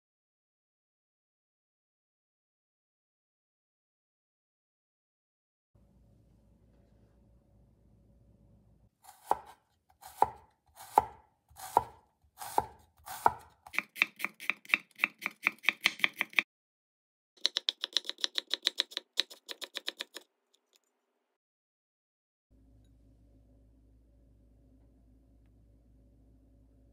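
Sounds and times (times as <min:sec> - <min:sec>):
knife chopping on wooden board: 0:09.1 - 0:16.4.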